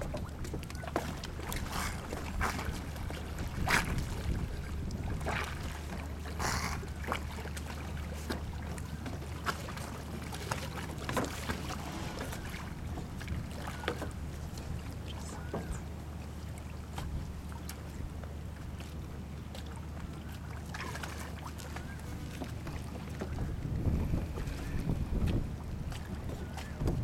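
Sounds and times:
water splashing and sloshing: 0.0 - 27.0
steady low rumble: 22.1 - 27.0.

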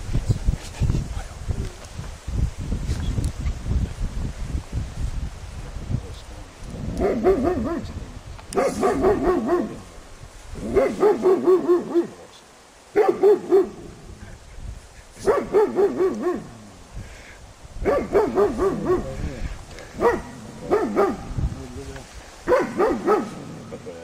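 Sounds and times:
dog barking: 7.0 - 7.9, 8.6 - 9.8, 10.6 - 12.2, 13.0 - 13.9, 15.2 - 16.5, 17.8 - 19.2, 20.0 - 21.3, 22.4 - 23.4.

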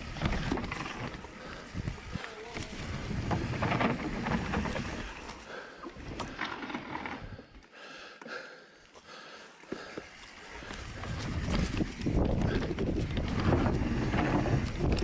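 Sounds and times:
bike rattling: 0.0 - 7.6, 9.4 - 15.0
bike tyres rumbling on dirt: 0.0 - 7.6, 9.8 - 15.0.

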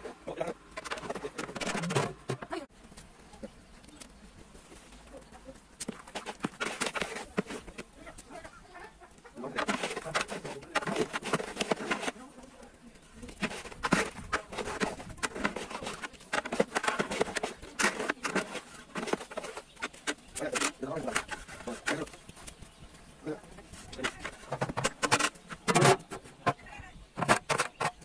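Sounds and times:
metal ladle scraping pot: 6.0 - 7.8, 9.4 - 12.2, 13.3 - 22.2, 23.8 - 28.0.

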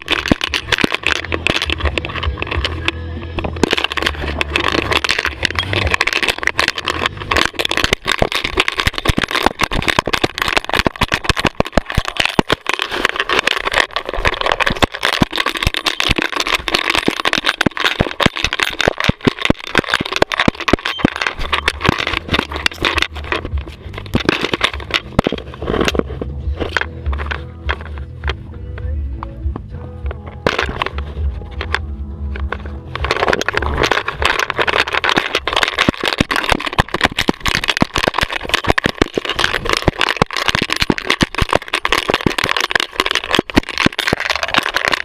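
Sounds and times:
camera harness rattling and knocking: 0.0 - 29.0, 29.6 - 45.0
low rumble: 24.8 - 34.7.

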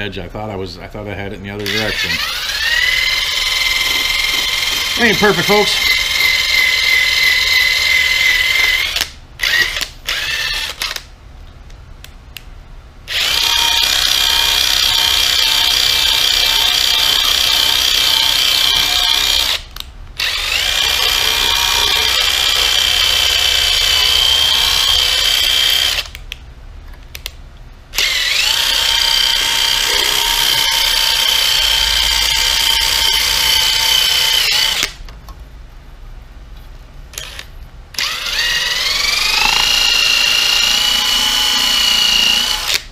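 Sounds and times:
electric buffing tool whining: 1.7 - 10.6, 13.1 - 19.6, 20.2 - 26.2, 28.0 - 34.9, 38.0 - 42.8.

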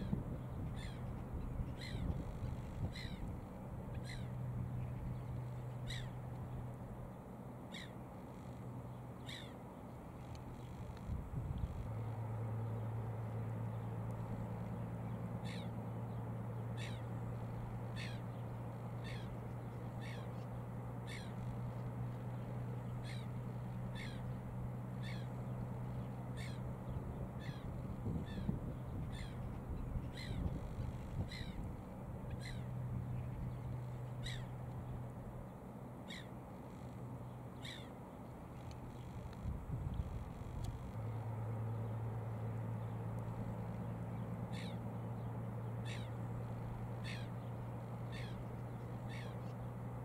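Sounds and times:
bird calling: 0.0 - 6.3, 7.7 - 8.6, 9.2 - 9.6, 14.7 - 35.0, 36.0 - 38.0, 41.8 - 49.8
steady low hum: 0.0 - 50.0.

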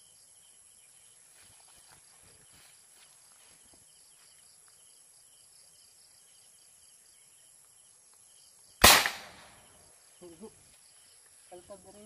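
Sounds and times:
marble gun firing crack: 8.8 - 9.6.

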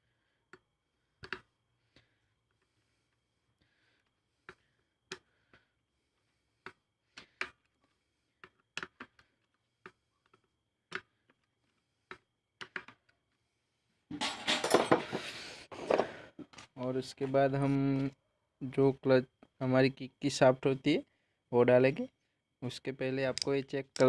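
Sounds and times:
metallic clatter: 14.1 - 15.1
socket wrench clicking: 23.3 - 24.0.

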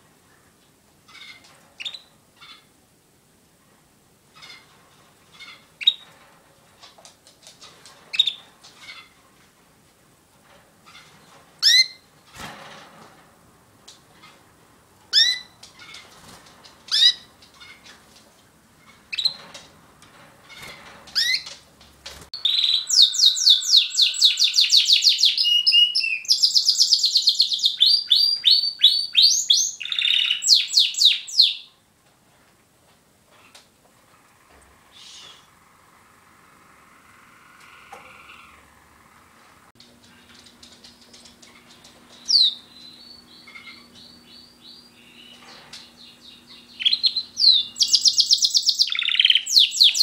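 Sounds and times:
canary chirping: 1.1 - 2.7, 5.3 - 6.1, 15.1 - 17.9, 18.8 - 19.5, 22.4 - 31.7, 41.5 - 50.0
canary singing trills: 22.4 - 31.7, 41.5 - 50.0.

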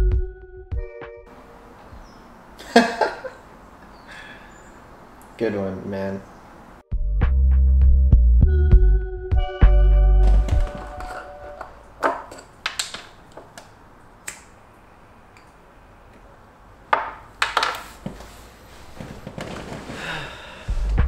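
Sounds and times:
jar handling clicks and scrapes: 10.4 - 13.1
knocks on wooden tabletop: 16.9 - 17.8.

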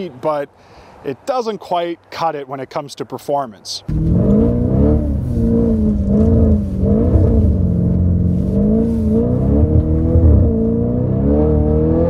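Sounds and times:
car engine accelerating: 3.9 - 12.0.

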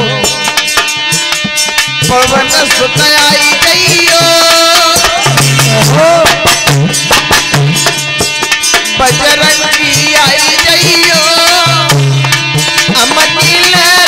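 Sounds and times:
man singing: 0.0 - 0.6, 2.0 - 6.8, 8.9 - 14.0
hand drum rhythm: 0.0 - 14.0
harmonium melody: 0.0 - 14.0.

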